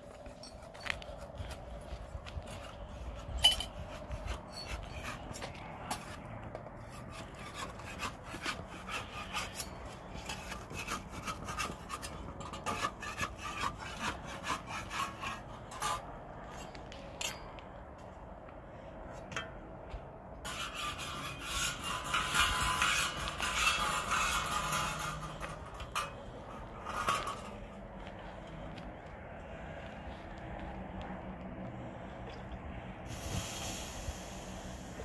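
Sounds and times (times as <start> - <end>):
metal spatula scraping iron griddle: 3.2 - 16.0, 20.5 - 27.8.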